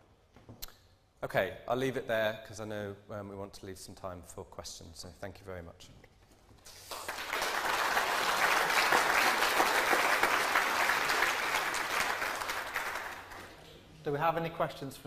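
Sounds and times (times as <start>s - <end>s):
audience applauding: 6.7s - 13.7s.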